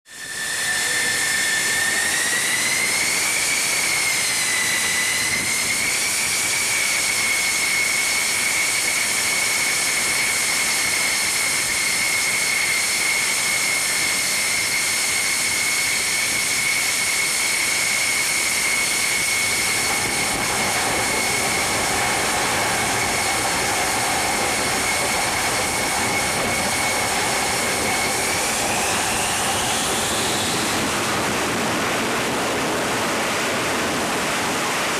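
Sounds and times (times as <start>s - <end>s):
jet engine high whine: 0.1s - 34.9s
low hum: 19.3s - 34.5s.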